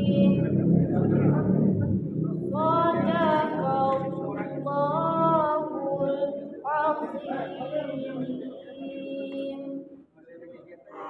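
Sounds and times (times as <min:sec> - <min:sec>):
woman chanting: 0:00.0 - 0:00.6, 0:02.5 - 0:09.9.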